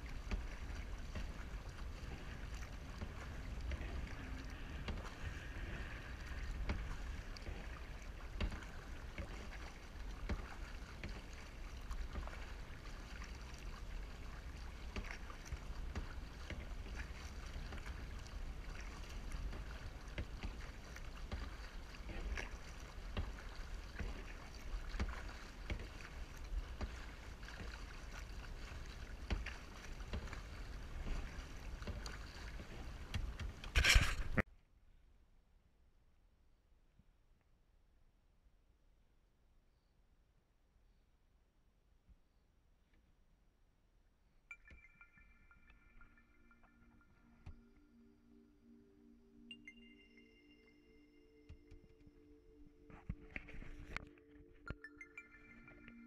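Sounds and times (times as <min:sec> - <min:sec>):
paddle splashing in water: 0:00.0 - 0:34.5, 0:52.6 - 0:54.8
water sloshing at bow: 0:00.0 - 0:34.5, 0:44.5 - 0:56.0
low rumble: 0:01.6 - 0:08.7.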